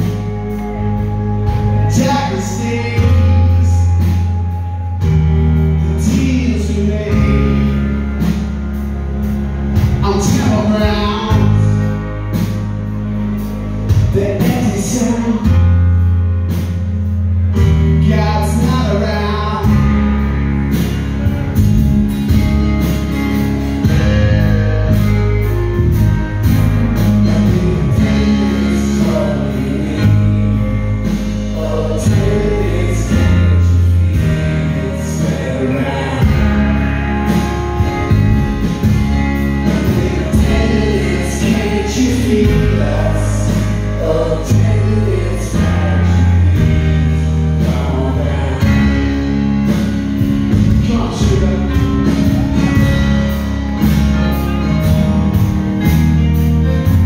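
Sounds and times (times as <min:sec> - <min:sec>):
person singing: 0:00.0 - 0:13.2, 0:13.8 - 0:16.0, 0:27.0 - 0:57.0
acoustic guitar: 0:00.0 - 0:57.0
held bass notes: 0:00.0 - 0:57.0
keyboards: 0:00.0 - 0:57.0.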